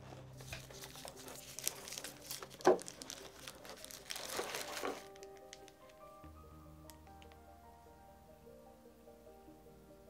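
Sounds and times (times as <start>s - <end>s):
plastic packaging crinkling: 0.1s - 6.2s.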